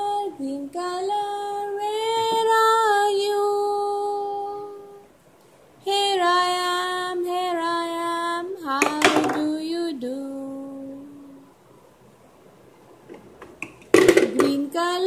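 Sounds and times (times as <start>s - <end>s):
high voice singing slowly: 0.0s - 5.2s, 5.8s - 11.6s.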